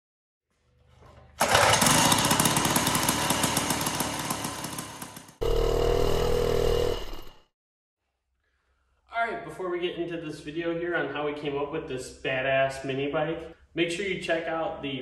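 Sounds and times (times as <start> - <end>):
two-stroke minibike engine buzzing: 1.4 - 7.4.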